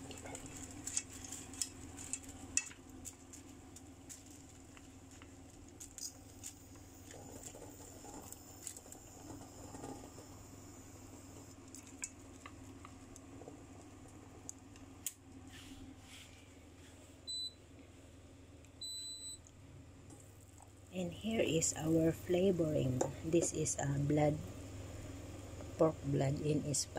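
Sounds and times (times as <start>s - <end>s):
chopsticks stirring noodles in a pan: 0.0s - 10.2s
faint steady hum: 0.0s - 26.9s.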